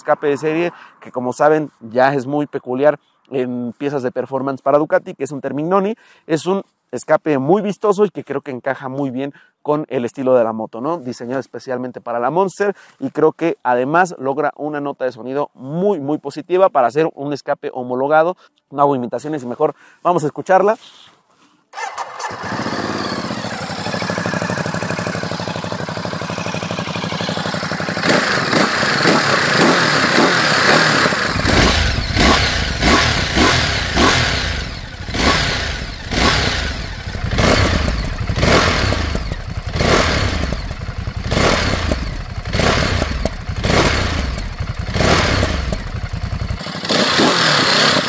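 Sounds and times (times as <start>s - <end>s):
motorcycle engine idling and revving: 21.8s - 48.0s.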